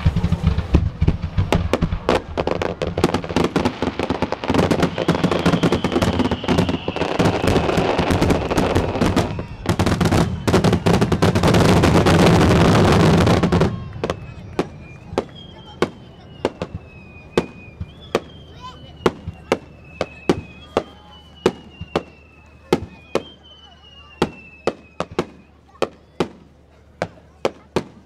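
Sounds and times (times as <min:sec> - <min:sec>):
sharp firework bangs: 0:00.0 - 0:23.3
fireworks bursting and crackling: 0:00.0 - 0:28.0
faint high falling whistle: 0:04.6 - 0:26.3.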